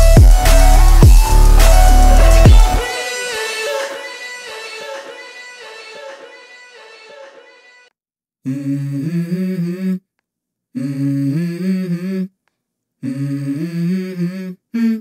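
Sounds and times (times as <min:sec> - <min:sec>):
person humming a melody: 0:08.5 - 0:10.0, 0:10.8 - 0:12.3, 0:13.0 - 0:15.0.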